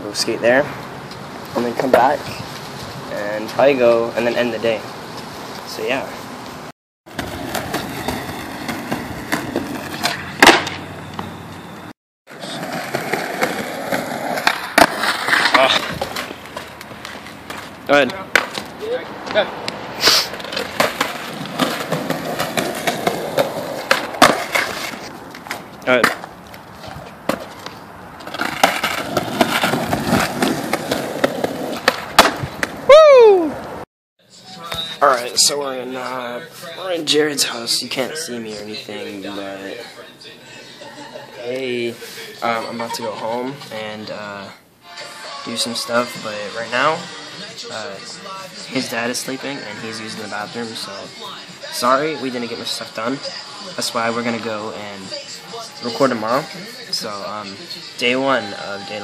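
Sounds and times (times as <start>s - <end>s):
skateboard wheels rolling on concrete: 0.0s - 33.8s
skateboard clacking on pavement: 7.1s - 11.3s, 12.6s - 18.7s, 20.3s - 32.8s
person crying out: 32.9s - 33.6s.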